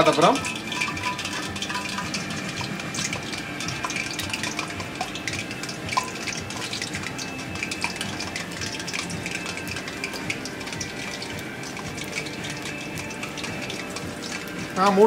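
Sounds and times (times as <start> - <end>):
food sizzling in hot oil: 0.0 - 15.0
oil popping: 0.0 - 15.0.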